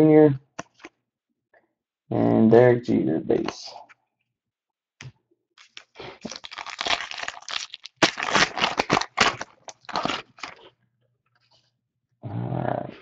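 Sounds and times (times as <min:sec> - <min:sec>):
foil wrapper crinkling and tearing: 0:05.6 - 0:10.7.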